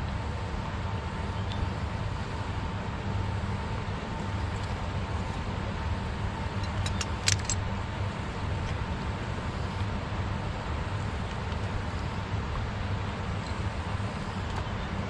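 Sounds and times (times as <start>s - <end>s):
fishing gear clicking: 6.6s - 7.6s.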